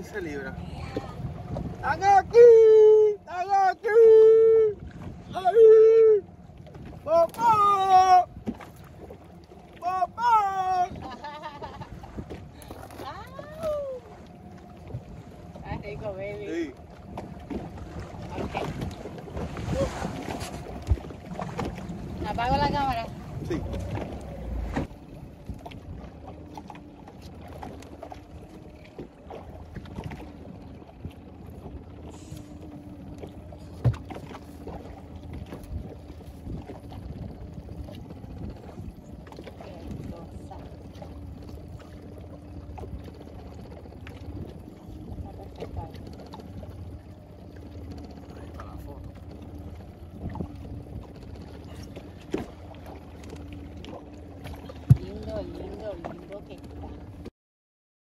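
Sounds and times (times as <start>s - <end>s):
water lapping on hull: 0.0s - 57.3s
knocks of handling aboard: 11.8s - 57.3s
knocks on boat deck: 33.8s - 34.3s, 54.8s - 55.2s.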